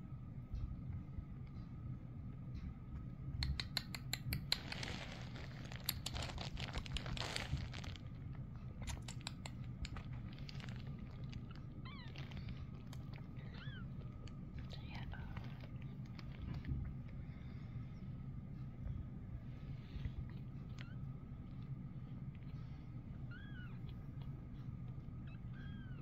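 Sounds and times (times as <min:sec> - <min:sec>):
kittens rustling on a towel: 0:04.4 - 0:17.6.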